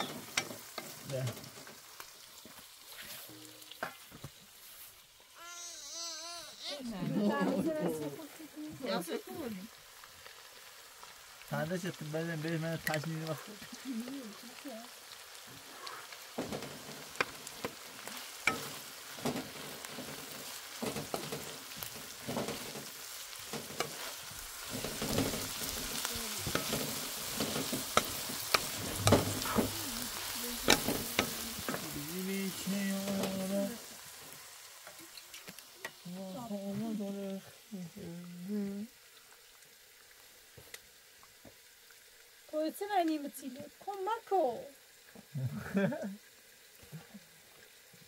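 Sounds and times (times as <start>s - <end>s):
onions sizzling in frying pan: 0.0s - 48.0s
wooden spatula knocking on pan: 27.4s - 29.8s.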